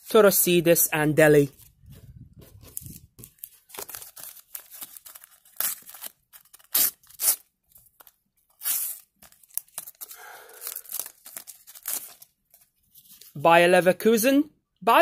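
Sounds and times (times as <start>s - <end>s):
wrapper tearing and crinkling: 2.6s - 13.4s.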